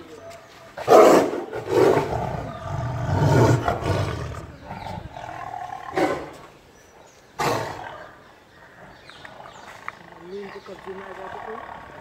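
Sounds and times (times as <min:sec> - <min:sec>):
tiger snarling and growling: 0:00.8 - 0:06.5, 0:07.4 - 0:08.2.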